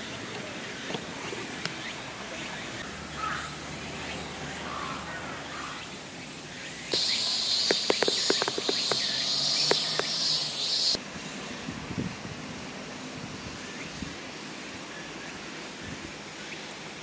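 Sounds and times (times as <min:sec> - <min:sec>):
faint bird chirps: 0:06.6 - 0:11.0
high-pitched insect drone: 0:06.6 - 0:11.0
short sharp chirps: 0:06.9 - 0:11.0.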